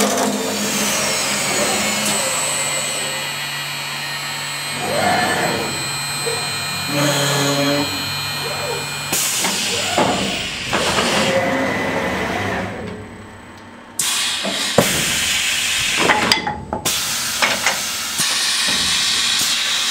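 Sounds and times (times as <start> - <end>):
wood lathe cutting: 0.0 - 12.5.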